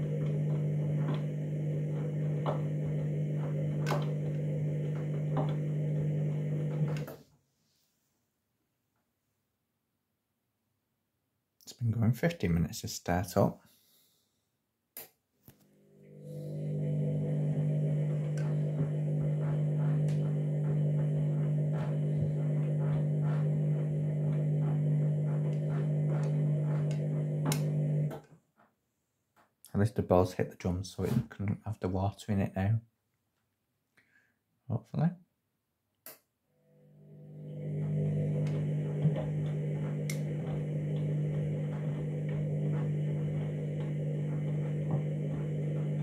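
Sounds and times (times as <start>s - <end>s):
washing machine motor hum: 0.0s - 7.2s, 15.8s - 28.2s, 36.6s - 46.0s.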